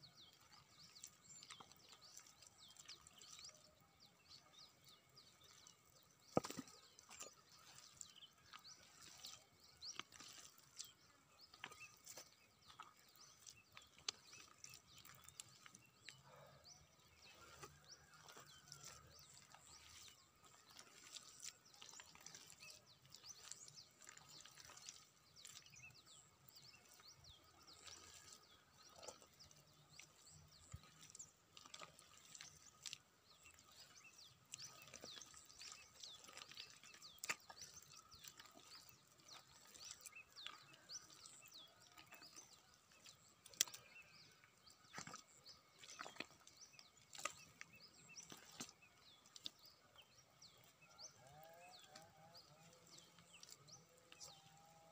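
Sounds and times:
bird chirps: 0:00.0 - 0:54.9
hands digging through mud: 0:06.3 - 0:16.2, 0:17.2 - 0:44.1.

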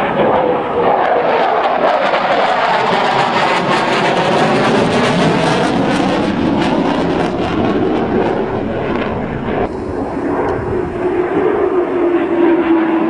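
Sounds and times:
jet engines roaring: 0:00.0 - 0:13.0
jet whine: 0:00.0 - 0:13.0.

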